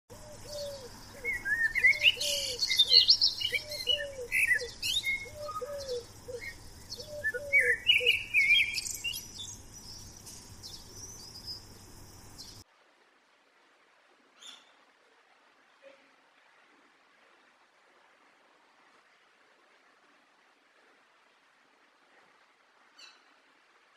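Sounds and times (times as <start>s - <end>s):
small birds chirping: 0.1s - 12.6s.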